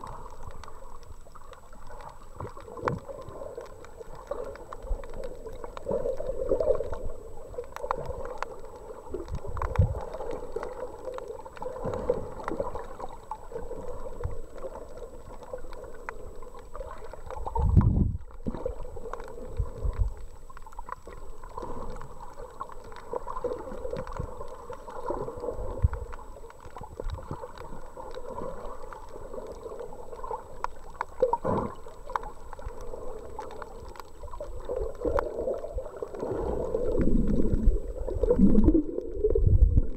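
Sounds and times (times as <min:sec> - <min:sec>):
water gurgling and sloshing: 0:00.0 - 0:39.9
low underwater thumps: 0:37.0 - 0:39.9.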